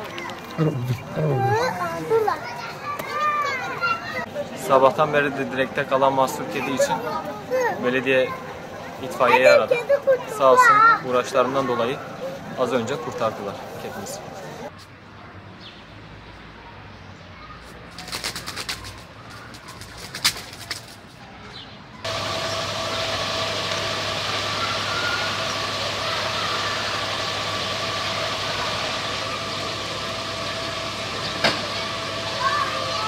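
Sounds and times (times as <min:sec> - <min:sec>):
pigeon flapping wings: 0:17.9 - 0:21.2
high mechanical whine: 0:22.1 - 0:33.0
truck engine running: 0:22.1 - 0:33.0.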